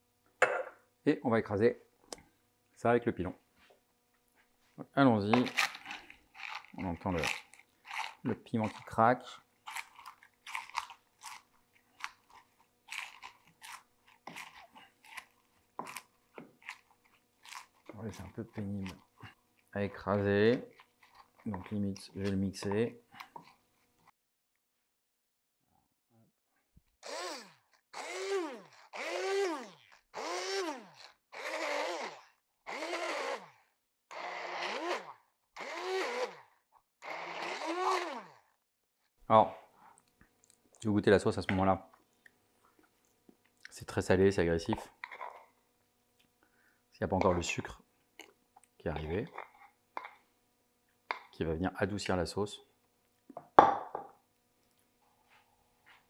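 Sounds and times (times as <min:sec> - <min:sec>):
chilli cracking and crunching: 0:05.3 - 0:08.9, 0:09.6 - 0:19.1
immersion blender whining in bursts: 0:27.0 - 0:38.5.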